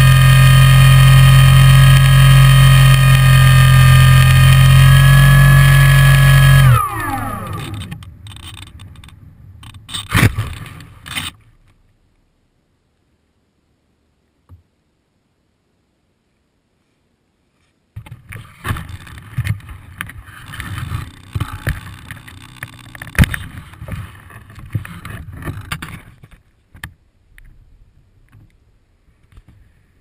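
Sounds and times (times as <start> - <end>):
grass rustling against camera: 0.0 - 12.2, 16.8 - 29.9
knocks and bumps: 18.0 - 27.6.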